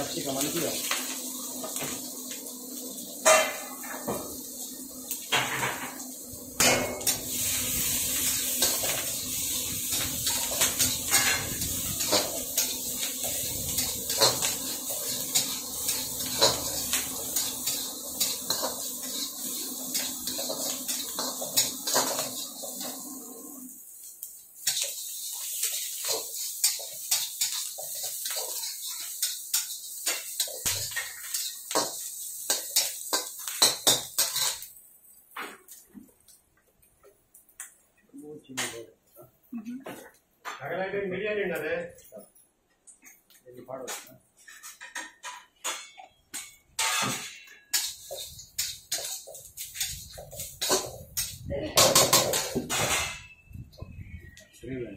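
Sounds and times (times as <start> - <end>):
frying sizzle: 0.0 - 38.8, 43.0 - 54.9
metal spatula scraping a wok: 6.6 - 23.1, 24.6 - 34.7, 44.4 - 53.5.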